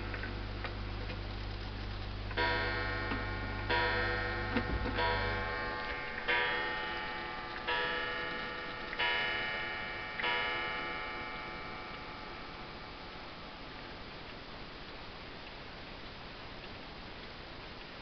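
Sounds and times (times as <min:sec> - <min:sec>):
pendulum clock ticking: 0:02.3 - 0:13.8
clock gong striking: 0:02.4 - 0:13.1.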